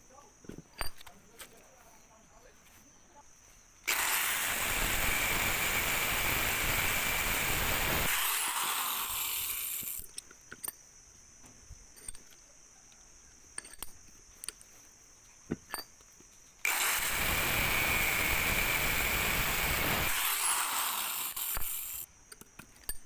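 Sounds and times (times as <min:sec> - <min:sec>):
angle grinder grinding steel: 0:03.9 - 0:10.0, 0:16.7 - 0:22.1
grinder motor winding down: 0:03.9 - 0:10.0, 0:16.7 - 0:22.0.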